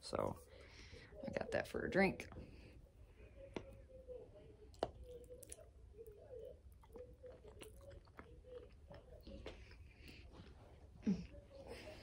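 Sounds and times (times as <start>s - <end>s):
person chewing food: 4.6s - 10.7s.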